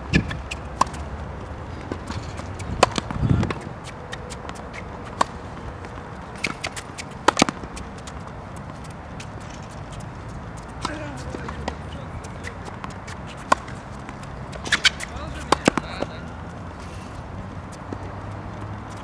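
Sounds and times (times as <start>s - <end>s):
running footsteps: 0.0s - 19.0s
tennis ball bouncing: 0.0s - 19.0s
tennis ball hit off strings: 4.4s - 8.2s, 10.6s - 16.3s.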